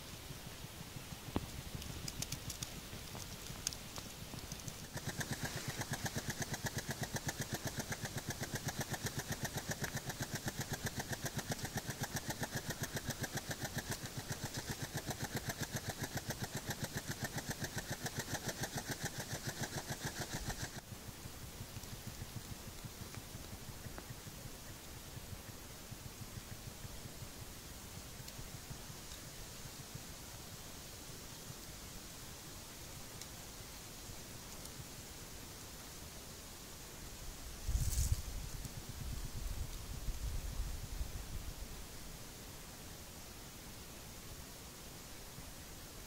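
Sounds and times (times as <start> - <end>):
faint clicks: 1.2 - 20.8, 21.6 - 25.6, 34.4 - 34.9
hedgehog sniffing: 1.2 - 20.8.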